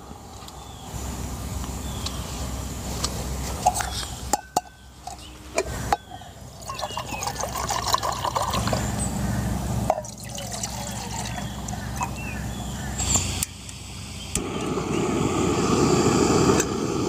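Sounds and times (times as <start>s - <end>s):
water pouring into metal cup: 6.6s - 8.8s, 9.9s - 12.2s.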